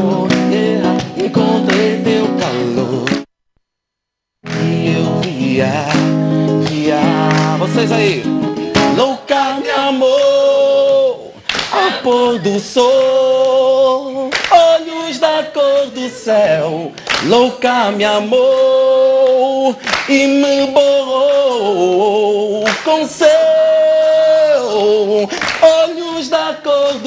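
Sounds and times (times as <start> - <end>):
man singing: 0.0 - 3.3, 4.4 - 27.0
nylon-string guitar: 4.4 - 11.1.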